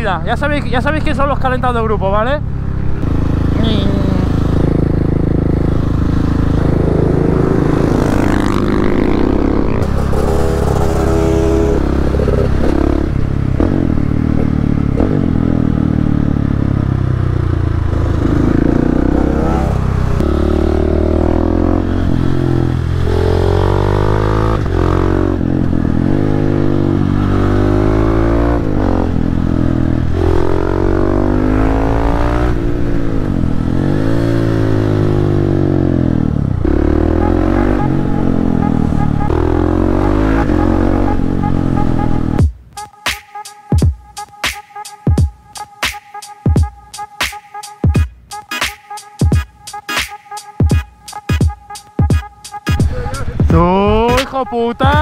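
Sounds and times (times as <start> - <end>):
motorcycle engines revving: 0.0 - 42.4.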